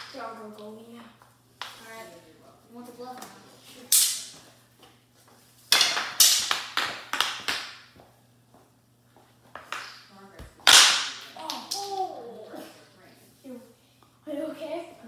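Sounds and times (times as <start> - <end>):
hockey sticks and ball clacking: 5.6 - 8.0, 9.5 - 12.2.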